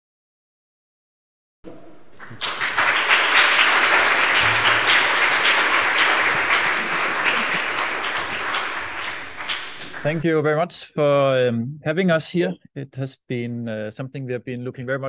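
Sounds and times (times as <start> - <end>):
audience applauding: 2.0 - 10.4.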